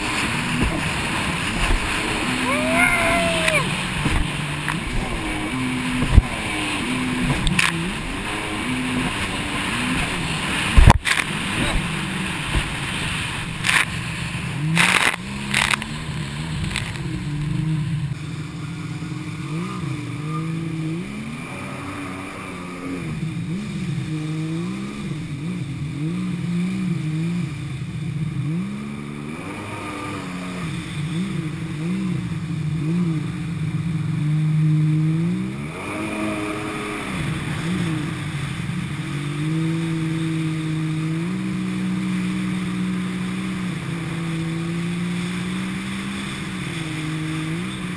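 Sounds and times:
loud water splashes: 0:00.0 - 0:18.9
jet ski engine revving: 0:00.0 - 0:47.9
water rushing against hull: 0:00.0 - 0:47.9.

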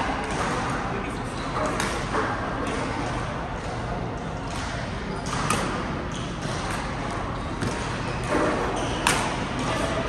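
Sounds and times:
racket striking shuttlecock: 0:04.5 - 0:06.8, 0:07.6 - 0:09.8.

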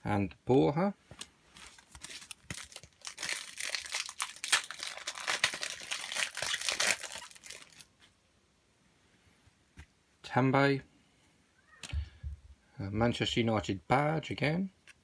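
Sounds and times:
card pack wrapper tearing and crinkling: 0:01.6 - 0:07.9.

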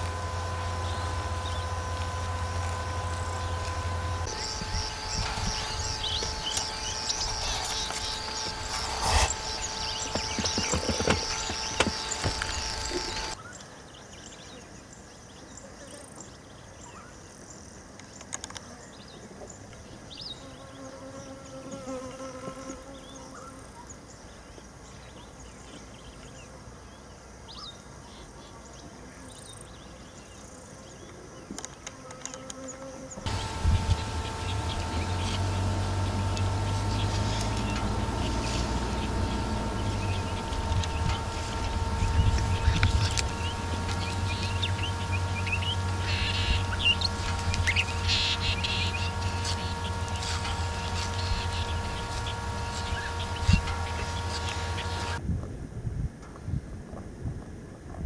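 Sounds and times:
low steady hum: 0:00.0 - 0:13.4, 0:33.2 - 0:55.2
insects chirping: 0:00.0 - 0:55.2.

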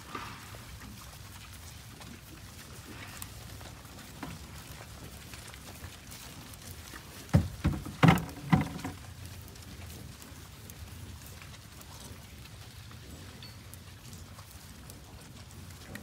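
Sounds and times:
bison loud low sounds: 0:00.0 - 0:01.3, 0:02.2 - 0:03.8
hooves pattering on grass: 0:00.0 - 0:16.0.

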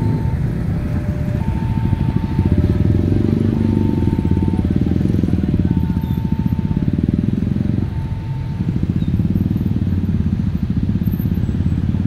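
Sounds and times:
motor scooter engines idling: 0:00.0 - 0:12.0.

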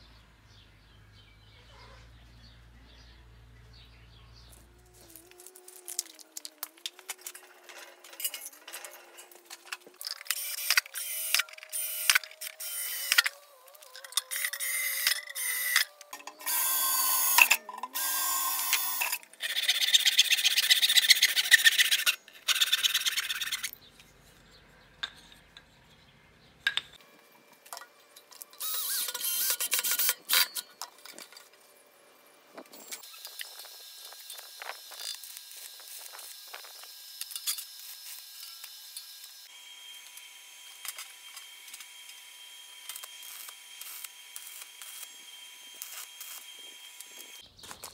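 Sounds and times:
power tool noise: 0:05.0 - 0:20.0, 0:28.4 - 0:30.8, 0:32.6 - 0:47.4.

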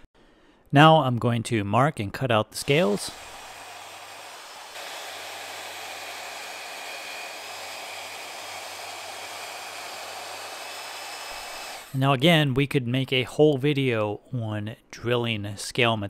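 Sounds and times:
power tool whirring: 0:02.6 - 0:12.0.

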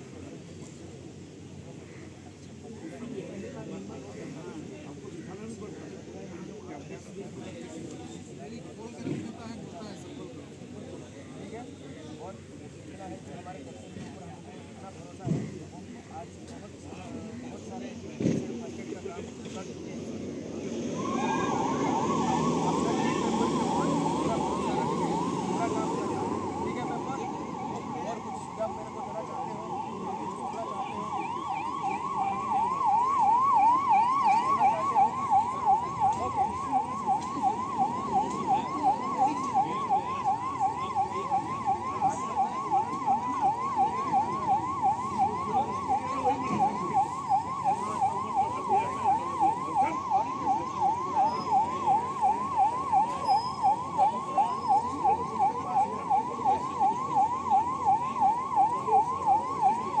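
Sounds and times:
electronic siren rising sweep: 0:20.4 - 1:00.0.

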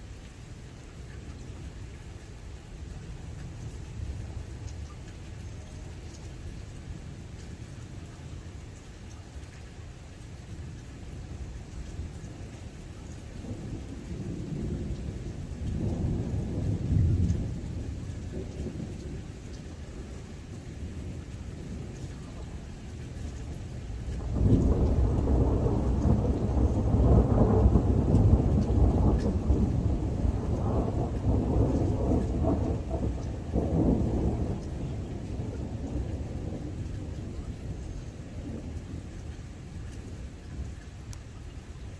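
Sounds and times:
thunder rumbling: 0:13.4 - 0:41.1
loud thunder clap: 0:24.2 - 0:36.8.

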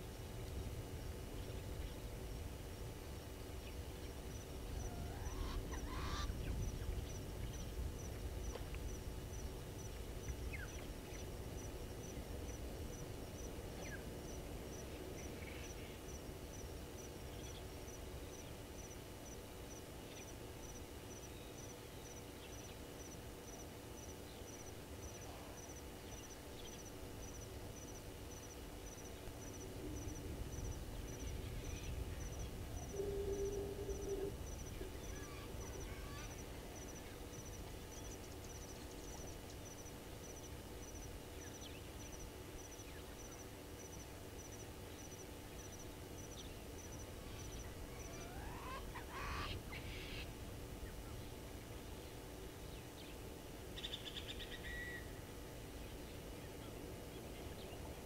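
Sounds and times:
low animal call: 0:32.8 - 0:36.4.

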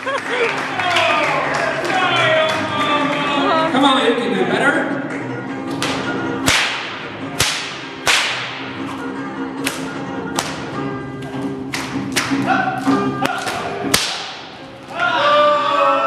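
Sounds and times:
background music: 0:00.0 - 0:16.0
whip cracking: 0:05.8 - 0:09.0, 0:09.6 - 0:10.7, 0:11.7 - 0:14.6.

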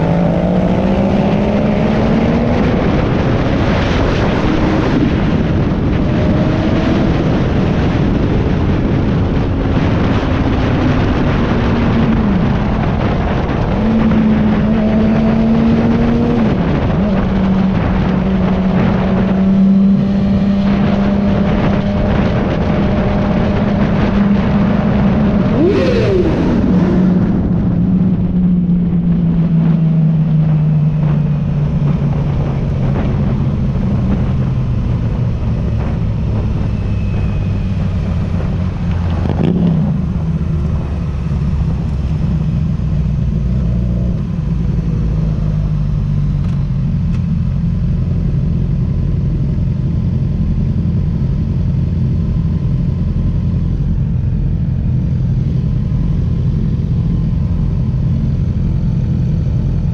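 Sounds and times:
motorcycle engine running: 0:00.0 - 0:59.9
wind rush: 0:00.0 - 0:59.9
motorcycle engine rev sweep: 0:10.4 - 0:28.2.

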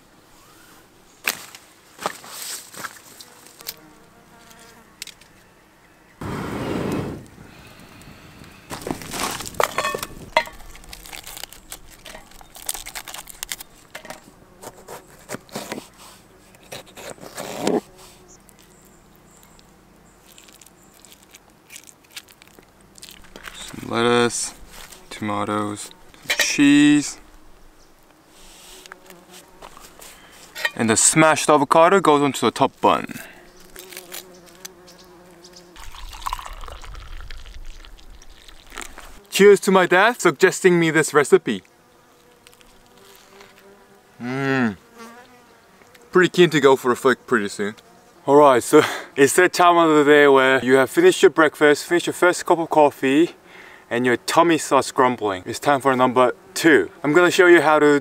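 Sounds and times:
fly buzzing: 0:00.3 - 0:30.9, 0:33.2 - 0:39.4, 0:40.8 - 0:48.3, 0:55.6 - 0:57.6
lettuce leaves being torn: 0:08.7 - 0:18.8, 0:20.2 - 0:24.0, 0:33.6 - 0:34.8, 0:35.8 - 0:39.2, 0:42.2 - 0:43.6
water pouring into a mug: 0:35.8 - 0:38.8.

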